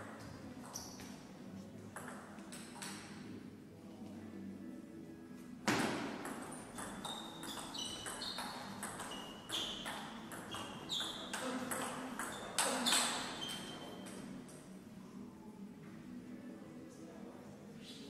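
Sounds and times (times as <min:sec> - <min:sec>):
table tennis ball bouncing: 0:02.0 - 0:03.1, 0:05.7 - 0:13.6.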